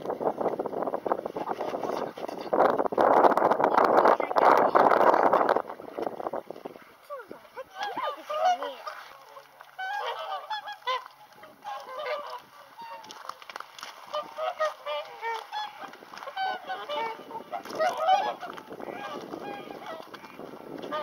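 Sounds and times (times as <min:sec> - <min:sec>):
swans honking: 0:07.5 - 0:21.0.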